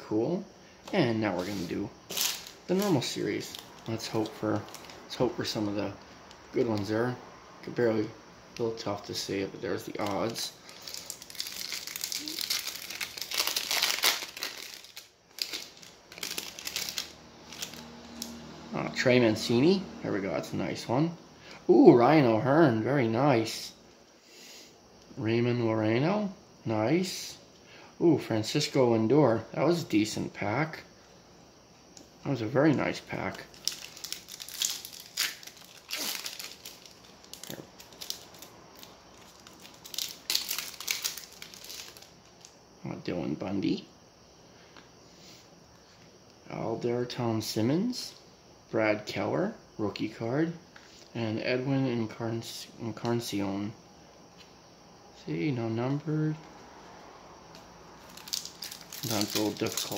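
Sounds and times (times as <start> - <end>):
foil wrapper tearing: 1.4 - 5.0, 10.0 - 17.8, 33.4 - 42.5, 58.0 - 59.9
foil wrapper crinkling: 1.4 - 5.6, 9.8 - 18.2, 33.2 - 42.5, 58.0 - 59.9.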